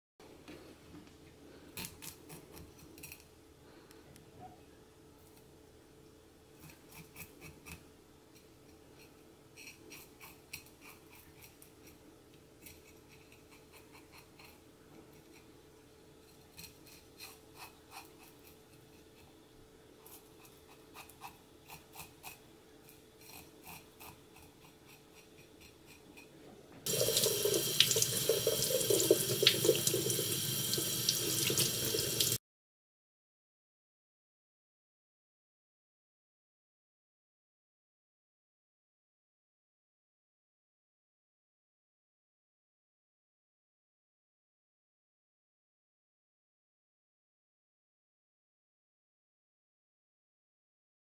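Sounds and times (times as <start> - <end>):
knife scraping fish scales: 1.7 - 3.3, 6.6 - 7.8, 8.4 - 12.0, 12.6 - 15.5, 16.3 - 19.4, 20.0 - 26.3
tap running into metal sink: 26.9 - 32.4.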